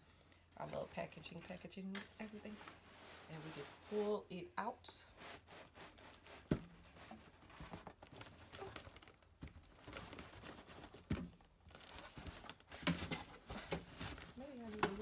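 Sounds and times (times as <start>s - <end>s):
cardboard sliding and scraping: 2.0s - 4.3s, 5.1s - 8.8s
plastic wrapping crinkling: 5.2s - 15.0s.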